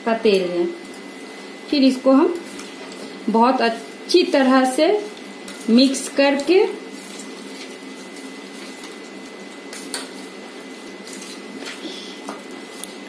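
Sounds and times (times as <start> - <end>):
chicken mixed in marinade: 3.8 - 13.0.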